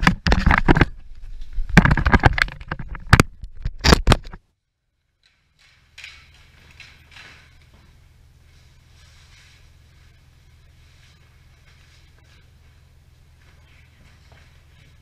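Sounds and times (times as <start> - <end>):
low room hum: 4.4 - 15.0.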